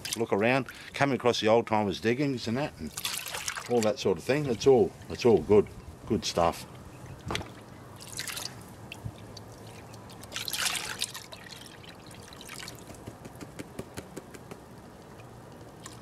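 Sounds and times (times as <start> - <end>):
water sloshing and pouring: 0.0 - 0.9, 2.8 - 4.1, 7.2 - 13.0, 15.0 - 16.0
water dripping: 6.7 - 13.6, 14.2 - 16.0.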